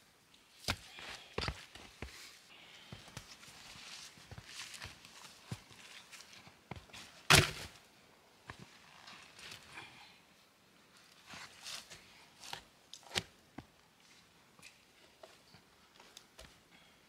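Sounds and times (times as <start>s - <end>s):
rustles and scrapes of bark and snow: 3.2s - 7.8s, 11.0s - 12.6s.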